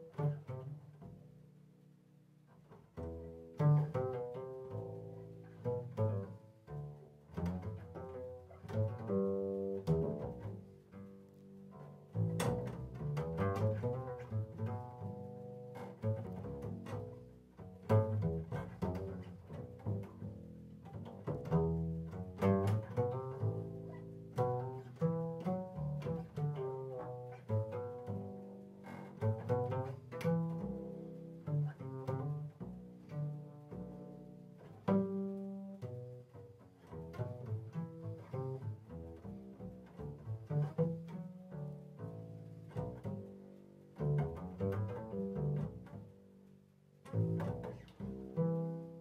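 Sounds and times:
upright bass plucked: 0:00.0 - 0:49.0.

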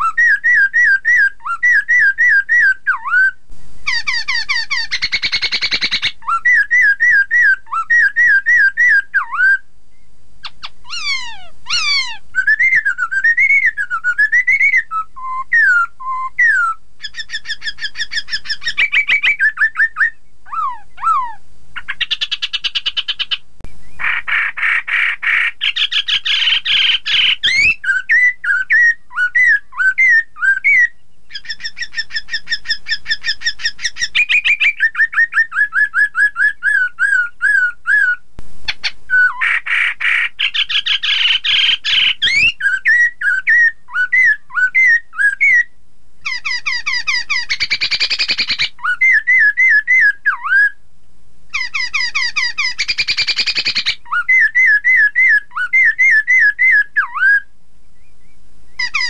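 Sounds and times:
bird singing whistled song: 0:00.0 - 0:38.2, 0:38.8 - 0:50.8, 0:51.5 - 0:59.0.

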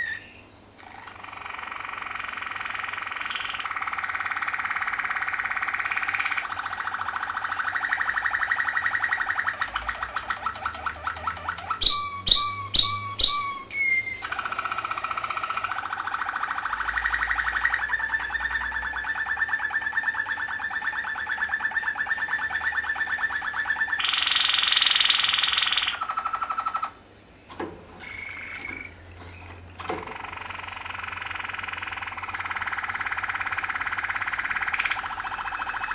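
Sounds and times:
canary trilling song: 0:00.0 - 0:35.9
sharp knocking bird notes: 0:02.3 - 0:18.9.

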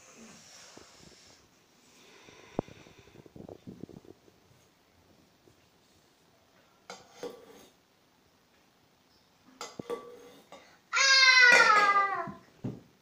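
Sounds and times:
child crying out: 0:10.9 - 0:12.4.

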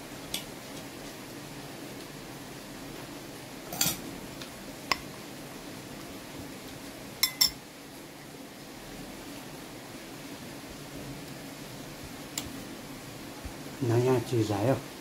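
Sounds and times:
low room hum: 0:00.0 - 0:15.0
utensils clinking on plate: 0:03.7 - 0:04.0, 0:07.2 - 0:07.6.

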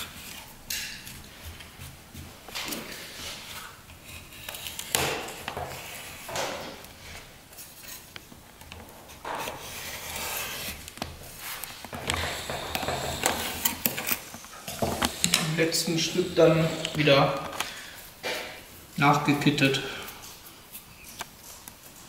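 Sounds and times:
metal tool scraping lead: 0:11.4 - 0:14.3.

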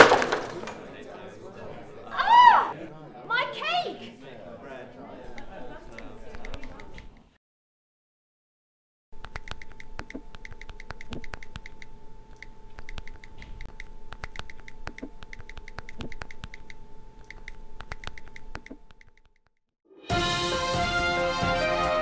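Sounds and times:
steady electronic tone and hum: 0:09.2 - 0:19.0
rapid typing clicks: 0:09.2 - 0:19.3.

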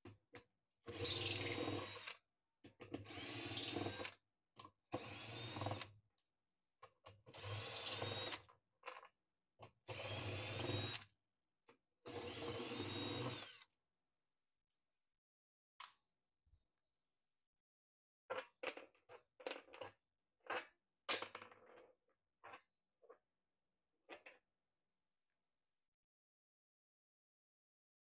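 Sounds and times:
cordless drill whine: 0:01.0 - 0:02.2, 0:03.1 - 0:04.2, 0:05.0 - 0:05.9, 0:07.4 - 0:08.4, 0:09.9 - 0:11.0, 0:12.1 - 0:13.6.

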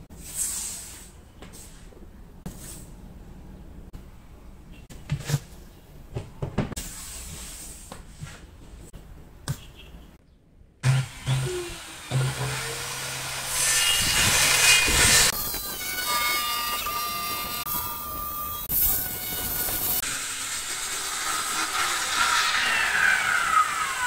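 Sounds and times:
circular saw cutting wood: 0:10.8 - 0:24.0.

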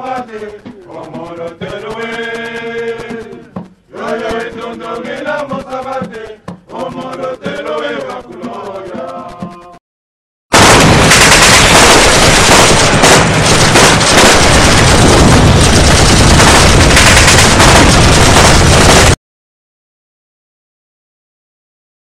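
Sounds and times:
machine guns and rifles firing: 0:10.5 - 0:19.2
deep booms: 0:10.6 - 0:19.2.

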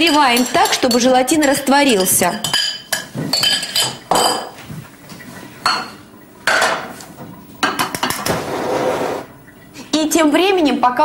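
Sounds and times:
spoon clinking in metal saucepan: 0:00.0 - 0:04.4.

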